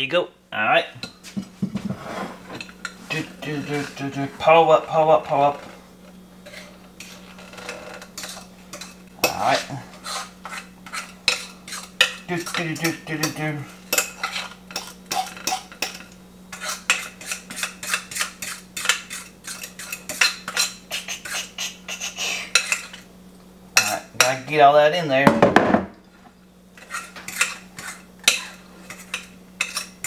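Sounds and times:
fork scraping glass bowl: 2.0s - 4.2s, 6.4s - 23.0s, 26.8s - 30.0s.

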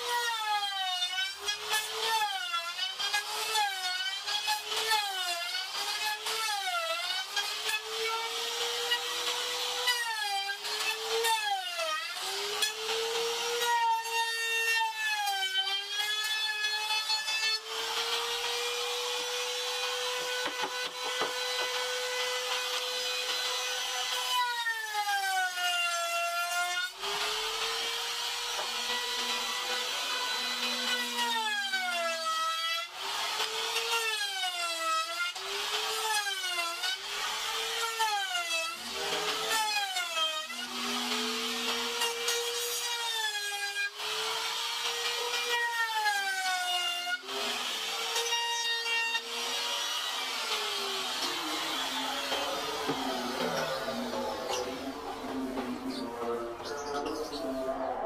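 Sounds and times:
electric router motor whine: 16.0s - 24.4s, 27.0s - 31.3s, 47.2s - 58.0s.

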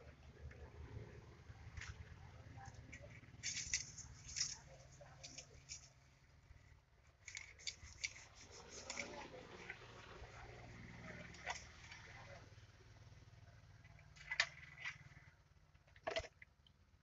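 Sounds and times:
small clicks and rustles: 1.7s - 6.2s, 7.2s - 9.8s.

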